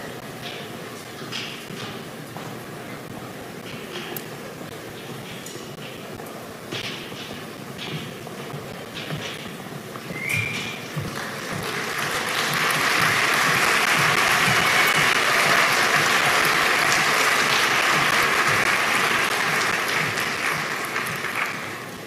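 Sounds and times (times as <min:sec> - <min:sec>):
audience applauding: 0:10.2 - 0:22.0.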